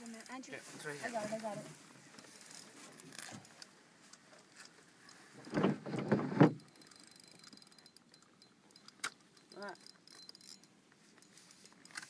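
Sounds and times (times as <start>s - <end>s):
fishing reel clicking: 6.6s - 12.0s.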